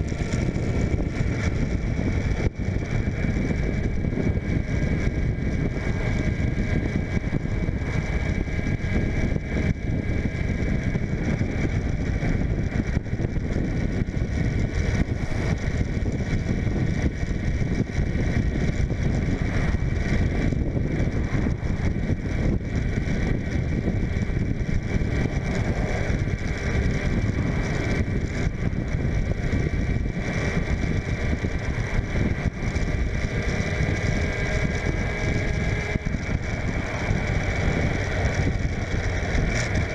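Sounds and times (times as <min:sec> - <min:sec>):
motorcycle engine running: 0:00.0 - 0:39.9
wind rushing over microphone: 0:00.0 - 0:39.9.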